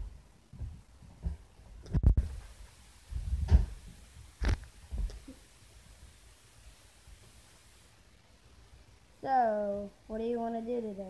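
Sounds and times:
handling thumps and bumps: 3.1 - 5.2.

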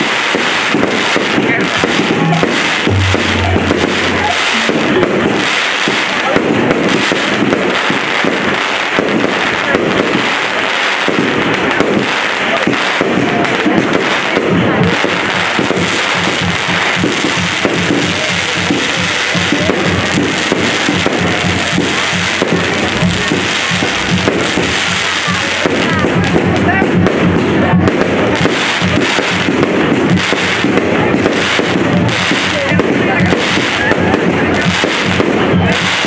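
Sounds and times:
fireworks crackling and popping: 0.0 - 36.0
music playing: 1.5 - 6.2, 16.8 - 26.4.

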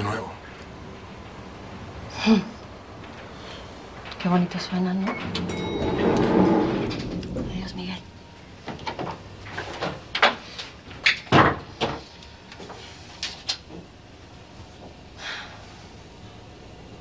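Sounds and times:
sharp knocks and clatters: 5.1 - 10.4.

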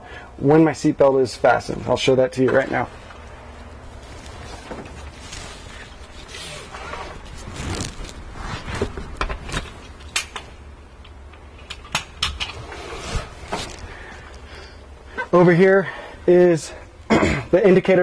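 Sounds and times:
low steady hum: 0.0 - 18.0
rustling of webbing and clothing: 2.6 - 10.2, 12.5 - 15.5.

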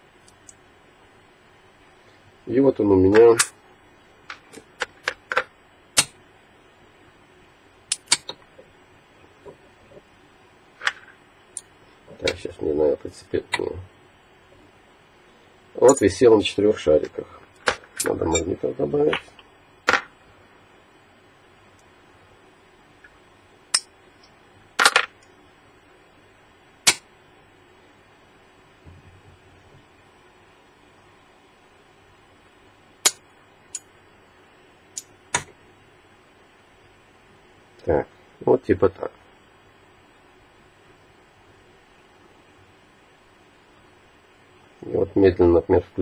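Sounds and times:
magnets clicking onto steel rotor: 7.9 - 8.4.

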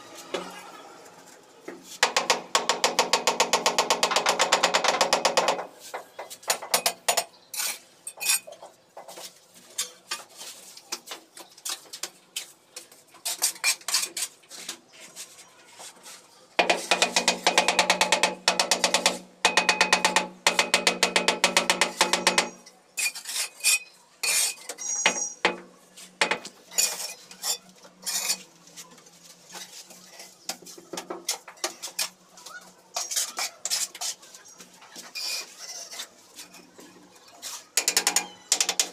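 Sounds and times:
trowel tapping and scraping tiles: 16.6 - 25.6.

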